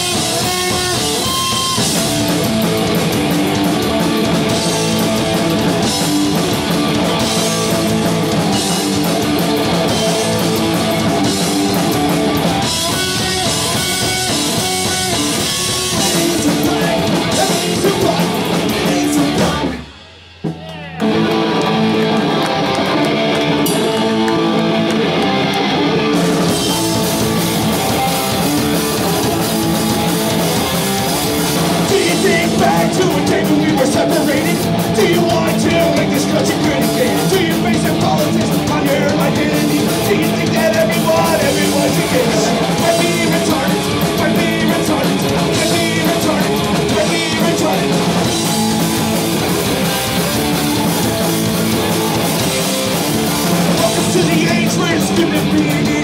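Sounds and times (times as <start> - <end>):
punk rock band playing: 0.0 - 56.0
person singing: 12.6 - 19.9, 31.7 - 49.9, 53.6 - 56.0.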